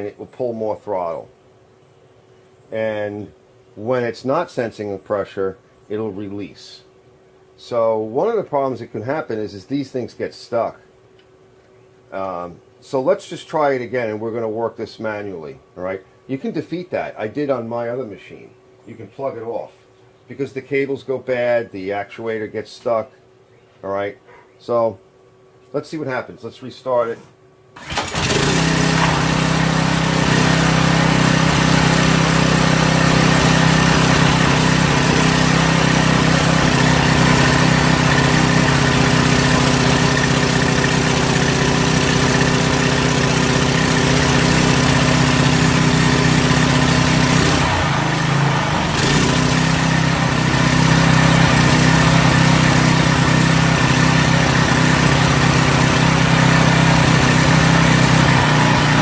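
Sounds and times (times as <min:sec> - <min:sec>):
pressure washer engine running: 0:27.8 - 0:59.0.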